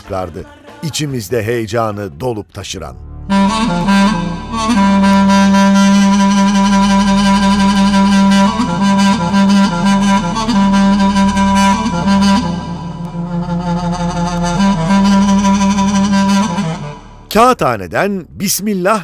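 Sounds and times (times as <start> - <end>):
reedy wind instrument: 3.0 - 17.6
steady low drone: 3.0 - 18.5.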